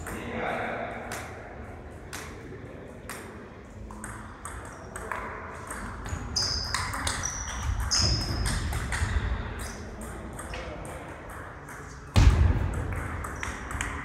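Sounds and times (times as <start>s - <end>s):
sneakers squeaking on gym floor: 5.7s - 9.9s.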